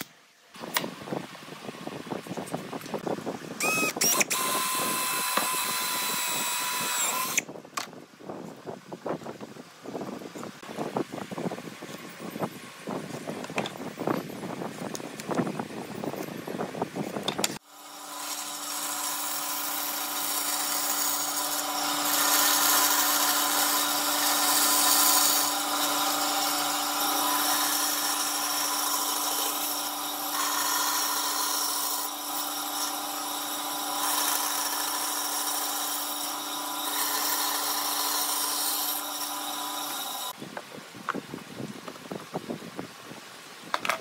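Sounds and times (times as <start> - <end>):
bandsaw motor hum: 3.6 - 7.4, 17.6 - 40.4
saw blade cutting wood: 3.6 - 7.5, 17.5 - 40.4.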